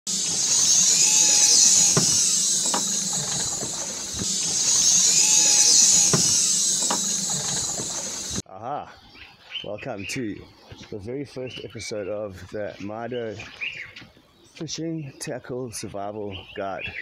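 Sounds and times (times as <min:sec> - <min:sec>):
high-pitched mechanical whirring: 0:00.1 - 0:08.4.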